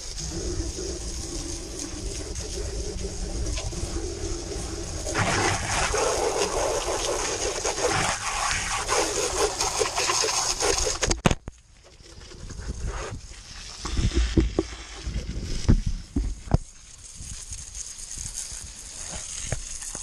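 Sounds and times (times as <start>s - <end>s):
hose nozzle spraying water: 0.0s - 11.2s, 11.9s - 20.0s.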